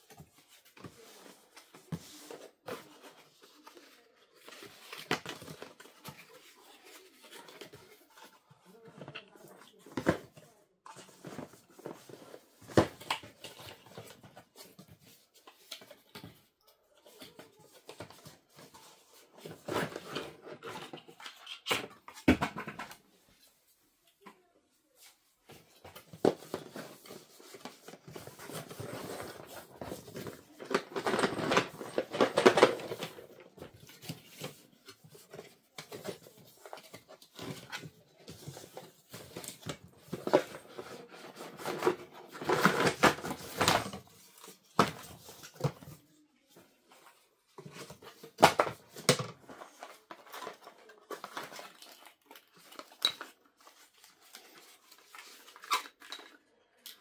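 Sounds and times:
cardboard rustling and scraping: 0:00.0 - 0:16.4, 0:25.0 - 0:56.0.

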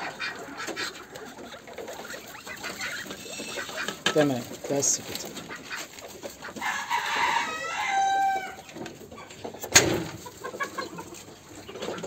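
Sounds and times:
chicken call: 0:00.0 - 0:04.1, 0:06.5 - 0:08.7.

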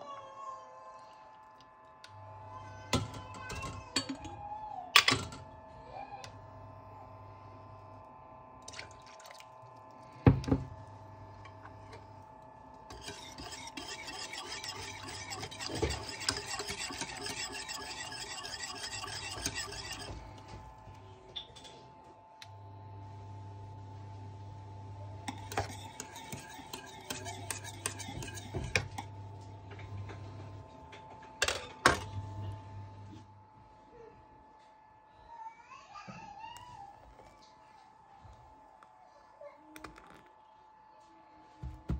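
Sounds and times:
faint steady hum: 0:00.3 - 0:41.9
whisk scraping metal pot: 0:12.8 - 0:20.6, 0:25.2 - 0:29.1.

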